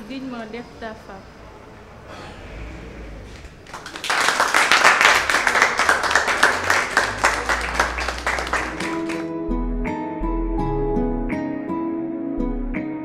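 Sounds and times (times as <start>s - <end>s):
group clapping: 3.3s - 9.3s.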